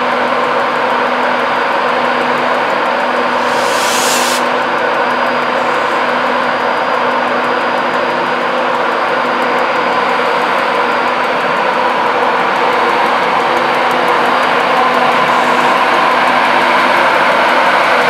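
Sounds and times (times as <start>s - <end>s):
faint high whine: 3.2s - 4.6s.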